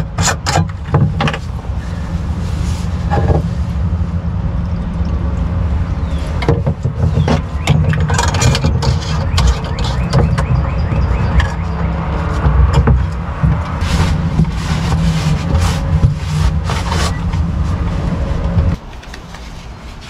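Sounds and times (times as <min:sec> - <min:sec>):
steady low rumble: 0:00.0 - 0:18.8
cloth rustling: 0:01.4 - 0:03.8, 0:13.6 - 0:20.0.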